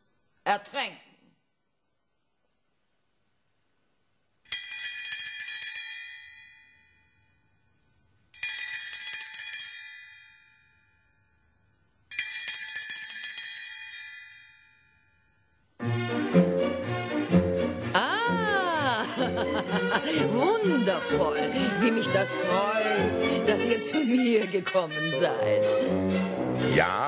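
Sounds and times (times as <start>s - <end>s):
bell ringing: 8.4s - 15.6s.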